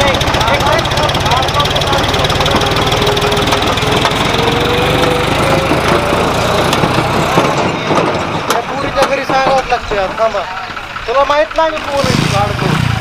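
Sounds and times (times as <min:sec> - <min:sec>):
diesel tractor engine: 0:00.0 - 0:13.0.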